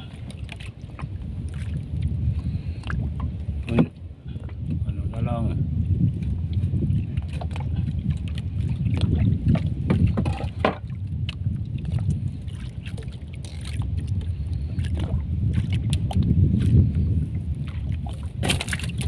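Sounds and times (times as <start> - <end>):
low rumble of wind: 0.0 - 19.0
water around boat: 0.0 - 19.0
knocks and scrapes of line hauling: 9.5 - 10.9.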